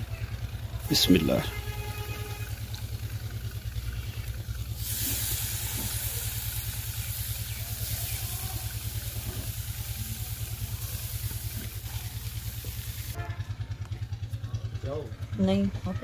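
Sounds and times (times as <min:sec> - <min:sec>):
fish sizzling on hot grate: 0:00.0 - 0:13.2.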